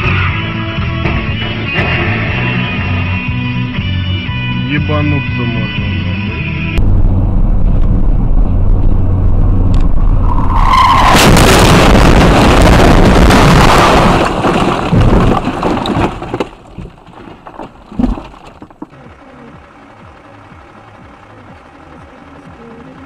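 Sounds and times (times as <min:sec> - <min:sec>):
road noise: 0:00.0 - 0:23.0
car crashing and scraping: 0:01.0 - 0:03.4, 0:10.2 - 0:18.9
tire squeal: 0:10.1 - 0:11.5
traffic noise: 0:18.5 - 0:23.0.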